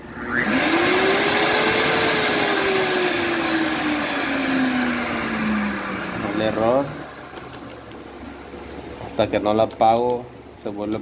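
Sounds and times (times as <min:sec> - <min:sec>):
blender motor whirring: 0:00.1 - 0:07.9.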